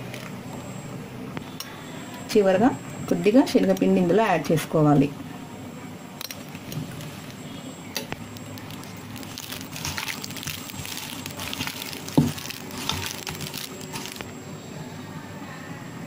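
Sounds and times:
wet rubbing of meat in marinade: 0:08.5 - 0:14.2.

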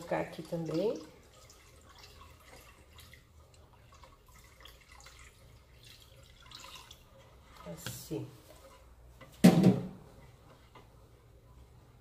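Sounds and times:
liquid pouring and dripping: 0:00.0 - 0:08.8.

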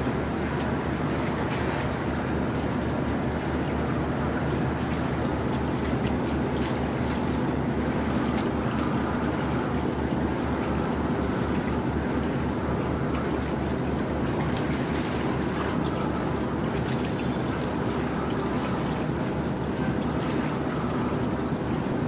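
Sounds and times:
boat engine throbbing: 0:00.0 - 0:22.0
water rushing: 0:00.0 - 0:22.0
wind: 0:00.0 - 0:22.0.

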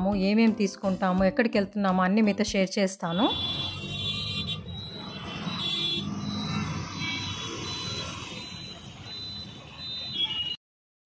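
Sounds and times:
engine hum and road noise: 0:03.1 - 0:10.2.

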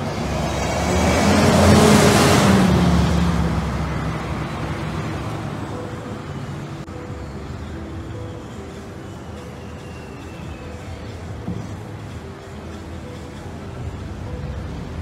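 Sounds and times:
motor vehicle passing: 0:00.0 - 0:09.6.

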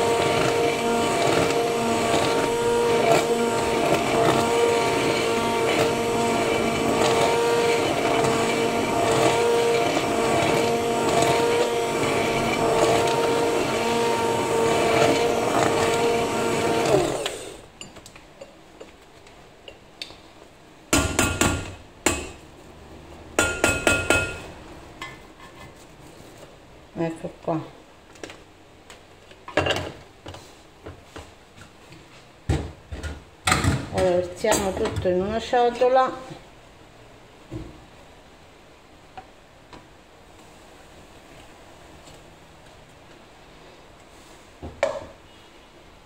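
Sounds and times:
immersion blender motor whine: 0:00.0 - 0:17.6.

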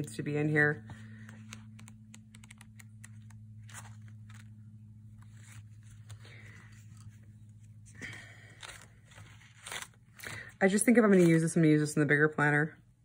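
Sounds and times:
paper pages flipping: 0:01.1 - 0:11.5.

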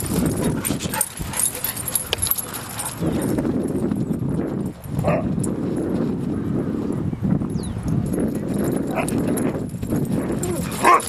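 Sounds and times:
wind buffeting microphone: 0:00.0 - 0:11.0
footsteps on gravel path: 0:08.7 - 0:11.0.

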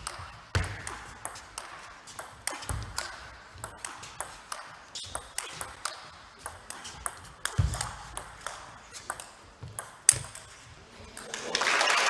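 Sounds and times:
table tennis ball clicks: 0:00.0 - 0:10.6
applause: 0:11.3 - 0:12.0.

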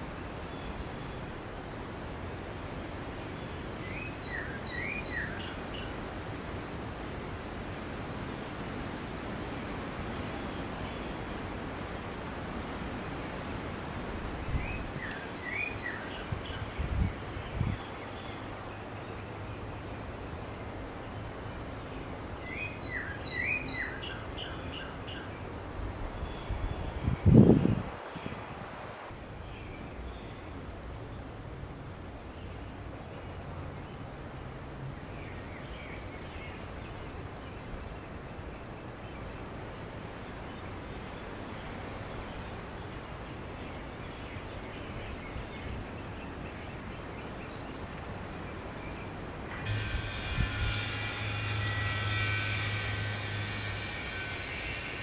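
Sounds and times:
outdoor background hiss: 0:00.0 - 0:55.0
wren chirping: 0:03.3 - 0:06.7, 0:14.5 - 0:18.5, 0:21.4 - 0:25.3, 0:49.0 - 0:55.0
faint high bird note: 0:49.5 - 0:55.0.

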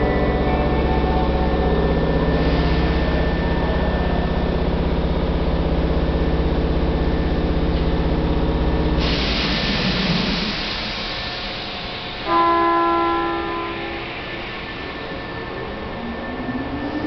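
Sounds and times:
pulsing mechanical hum of train: 0:00.0 - 0:17.0
loud hiss: 0:09.0 - 0:12.3.

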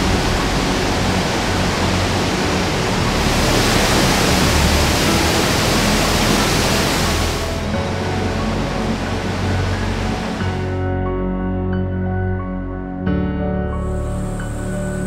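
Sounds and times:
waterfall rushing: 0:00.0 - 0:10.8, 0:13.9 - 0:15.0.

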